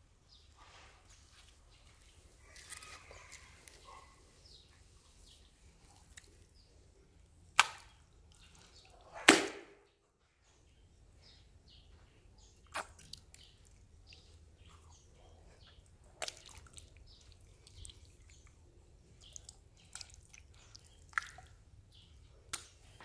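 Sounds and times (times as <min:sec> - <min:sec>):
wet squelches of jelly: 0:01.4 - 0:04.1, 0:05.4 - 0:06.7, 0:12.6 - 0:21.8
wet smacks: 0:07.6 - 0:08.6, 0:12.6 - 0:13.8, 0:16.2 - 0:18.6, 0:19.2 - 0:21.5, 0:22.5 - 0:22.8.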